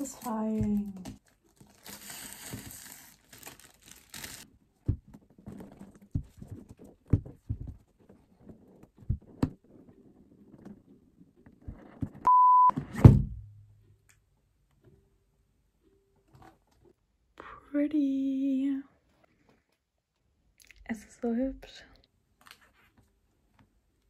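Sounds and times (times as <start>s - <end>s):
plastic wrap crinkling: 0.0s - 4.5s
short steady beep: 12.3s - 12.8s
loud thud: 12.8s - 13.6s.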